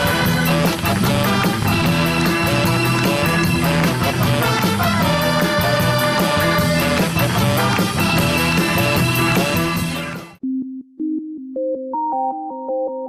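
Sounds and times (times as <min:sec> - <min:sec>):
upbeat song with steady beat: 0:00.0 - 0:10.4.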